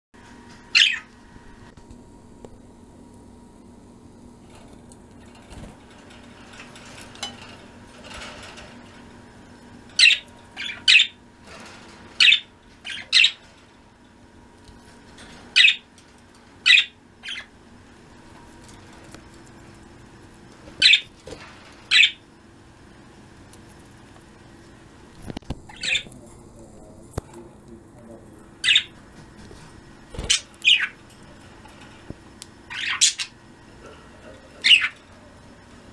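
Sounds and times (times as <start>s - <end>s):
budgerigars chirping: 0.8s - 1.1s, 10.0s - 11.2s, 12.2s - 13.4s, 15.6s - 15.8s, 16.6s - 17.5s, 20.8s - 21.1s, 21.9s - 22.2s, 25.7s - 26.1s, 28.6s - 28.9s, 30.2s - 31.0s, 32.7s - 33.4s, 34.6s - 35.0s.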